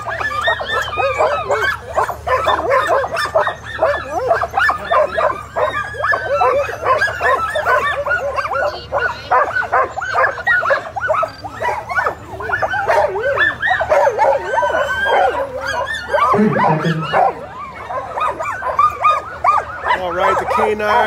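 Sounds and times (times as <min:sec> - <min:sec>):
sled dogs barking and yipping: 0:00.0 - 0:21.0.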